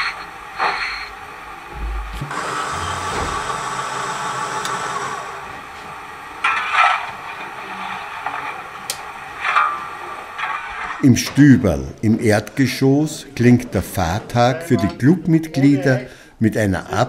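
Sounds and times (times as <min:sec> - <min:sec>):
low thumps: 0:01.7 - 0:03.6.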